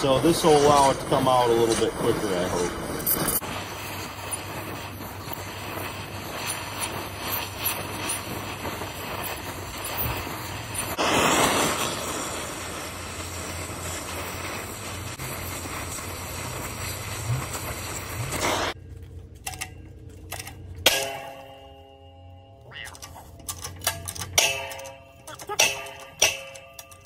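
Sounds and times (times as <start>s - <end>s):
torch flame hissing: 0.0s - 19.0s.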